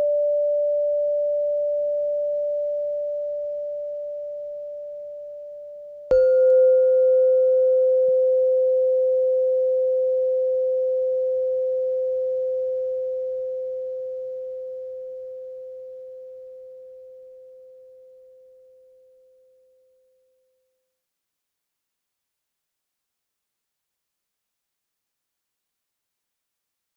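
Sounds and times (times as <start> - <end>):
bell-like tone ringing: 0.0 - 17.5
higher bell tone ringing: 6.1 - 16.2.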